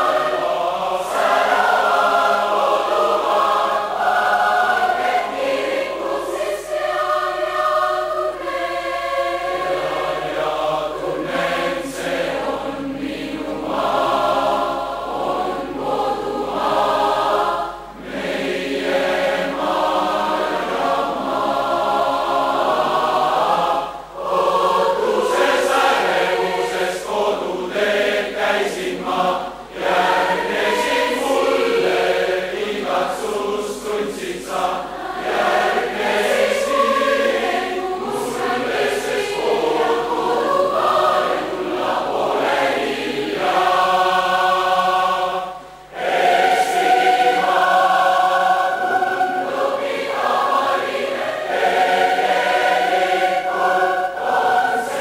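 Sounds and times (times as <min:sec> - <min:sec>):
choir singing a cappella: 0:00.0 - 0:55.0.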